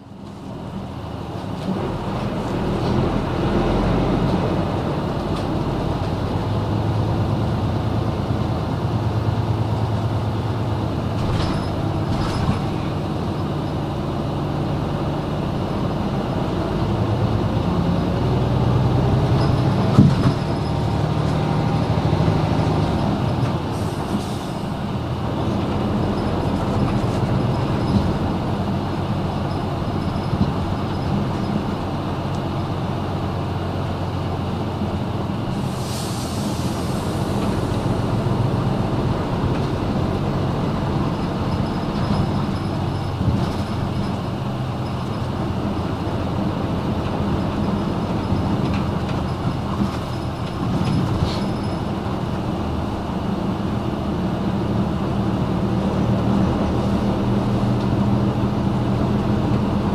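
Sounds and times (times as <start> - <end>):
bus diesel engine: 0.0 - 59.9.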